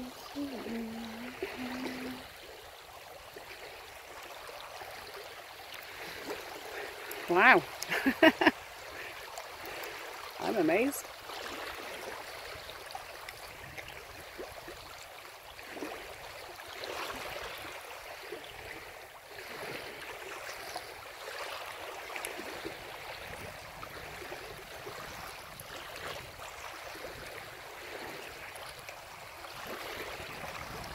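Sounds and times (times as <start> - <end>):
sea waves washing on shore: 0.0 - 30.9.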